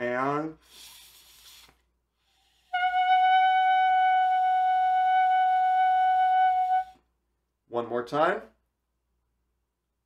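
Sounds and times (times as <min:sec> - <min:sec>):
person breathing in: 0:00.6 - 0:02.7.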